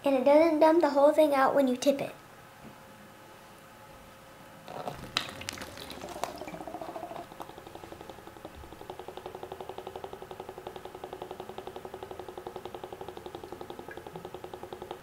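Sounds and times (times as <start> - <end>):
water bubbling: 4.7 - 15.0.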